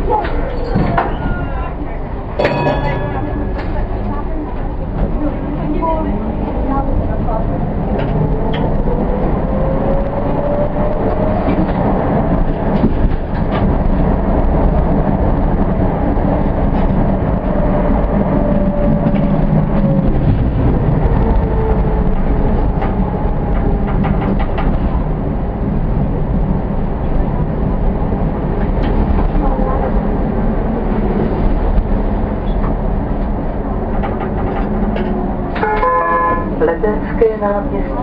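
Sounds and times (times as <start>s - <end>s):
tram motor whine: 0.0s - 38.0s
tram wheels rumbling on rail: 0.0s - 38.0s
wheels clicking over rail joints: 10.8s - 25.3s.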